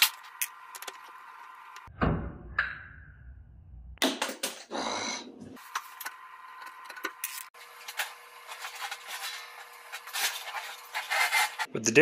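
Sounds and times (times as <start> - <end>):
appliance scraping: 4.6 - 11.7.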